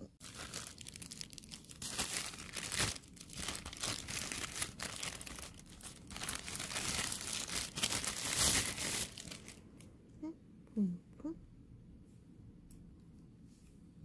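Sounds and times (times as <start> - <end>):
plastic packaging crinkling: 0.2 - 9.6.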